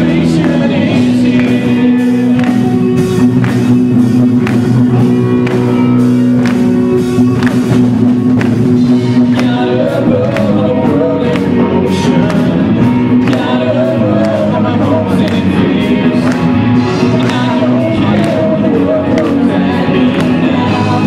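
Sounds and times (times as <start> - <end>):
people singing: 0.0 - 3.2, 8.8 - 21.0
drum beat: 0.0 - 21.0
electric guitars: 0.0 - 21.0.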